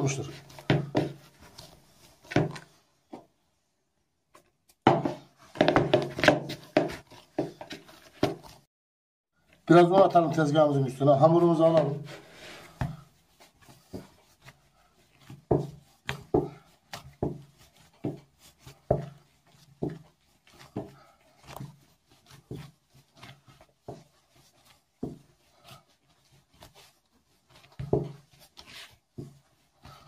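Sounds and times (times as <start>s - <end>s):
soft rubbing of dough: 0.0s - 3.6s, 5.2s - 8.7s, 9.4s - 30.0s
dough thumping on counter: 0.6s - 1.2s, 4.8s - 8.6s, 15.2s - 21.7s, 27.5s - 28.3s.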